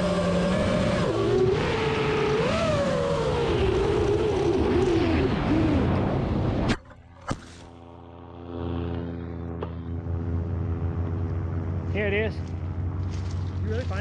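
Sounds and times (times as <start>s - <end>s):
motor droning in flight: 0.0s - 14.0s.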